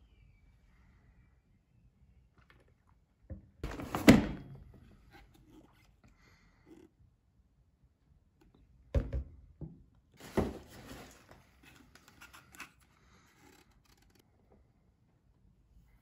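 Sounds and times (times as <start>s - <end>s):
rustling: 10.2s - 14.2s.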